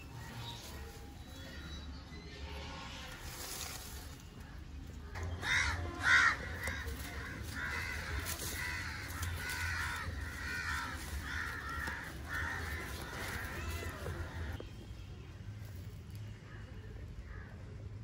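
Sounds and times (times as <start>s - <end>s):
crow cawing: 5.2s - 14.6s.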